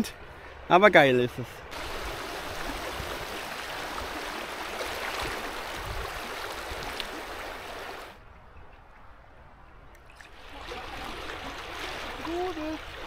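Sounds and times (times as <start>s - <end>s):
river water rushing: 1.7s - 8.2s, 10.2s - 13.0s.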